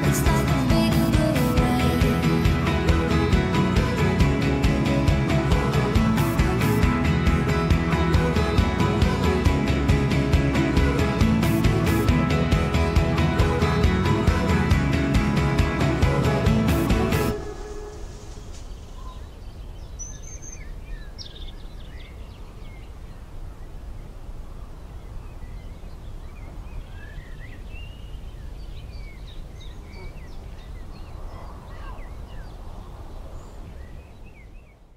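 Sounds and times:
low outdoor rumble: 0:00.0 - 0:19.6
birds chirping: 0:00.0 - 0:24.2, 0:24.8 - 0:34.9.

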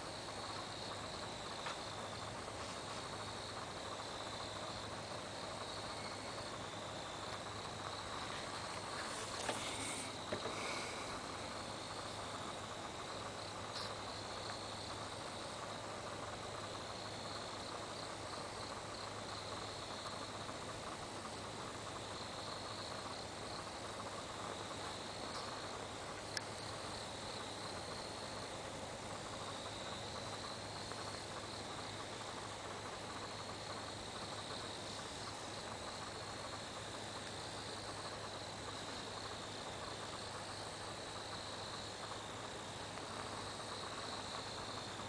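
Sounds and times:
crickets chirring: 0:00.0 - 0:45.0
faint hiss: 0:00.0 - 0:45.0.

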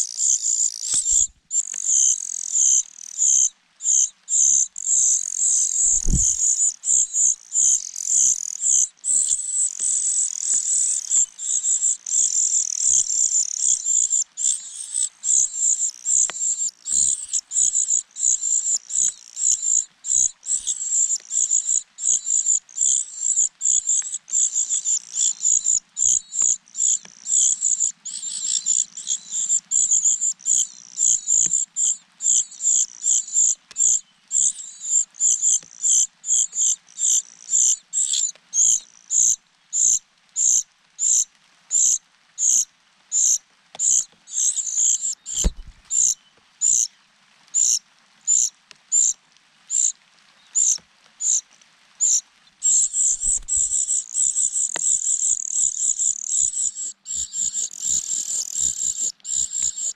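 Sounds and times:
cuckoo chick begging calls: 0:00.2 - 0:41.2, 0:43.2 - 0:46.9, 0:52.0 - 0:59.9
soft thump: 0:05.9 - 0:06.4.

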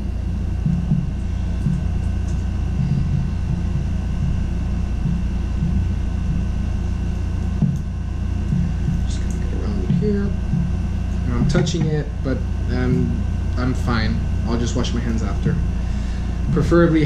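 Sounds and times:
faint high whine: 0:00.0 - 0:17.0
low mechanical rumble: 0:00.0 - 0:17.0
soft bumps: 0:08.5 - 0:12.1.

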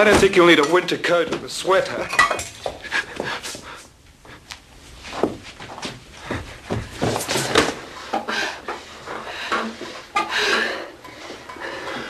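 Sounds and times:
footsteps: 0:02.6 - 0:08.0.

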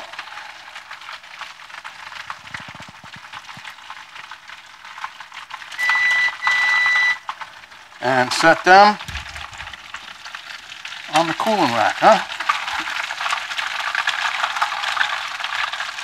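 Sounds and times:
oil sizzling in a skillet: 0:00.0 - 0:16.0
high electronic beep: 0:05.8 - 0:07.2.

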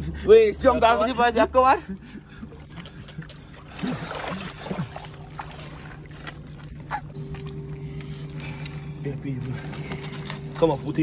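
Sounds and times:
steady low hum: 0:00.0 - 0:11.0
seawater splashing and dripping: 0:00.1 - 0:08.4.

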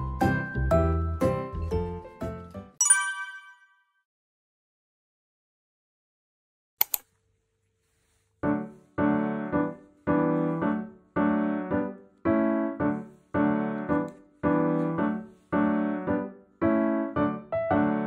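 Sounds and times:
piano chords: 0:08.4 - 0:18.0.

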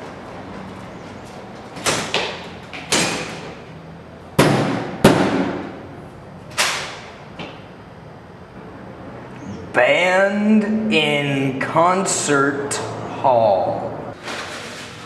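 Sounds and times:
heavy bangs on doors: 0:04.4 - 0:05.8.

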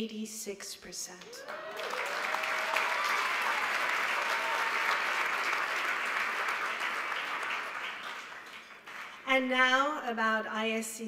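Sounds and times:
audience applauding: 0:01.3 - 0:09.3.

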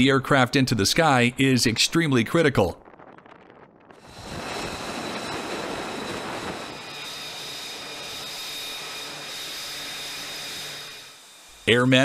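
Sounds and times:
jet engine running: 0:02.9 - 0:12.0
high-pitched jet whine: 0:04.0 - 0:12.0.

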